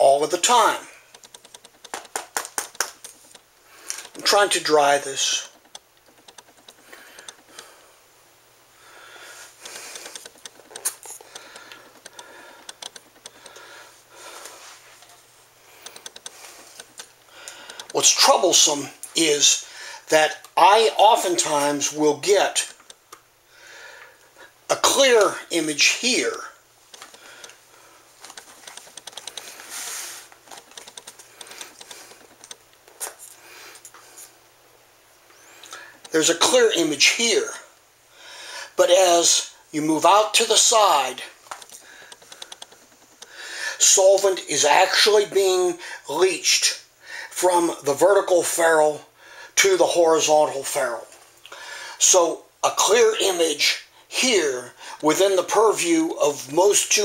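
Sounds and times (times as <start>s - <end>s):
soft rubbing: 28.1s - 30.6s
short hiss: 29.6s - 30.3s.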